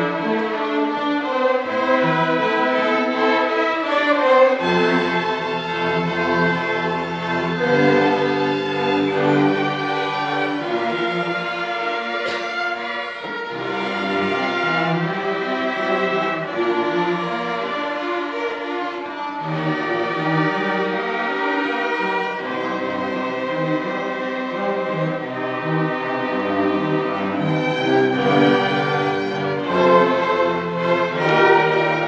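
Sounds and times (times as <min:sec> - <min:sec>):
string orchestra playing: 0:00.0 - 0:32.0.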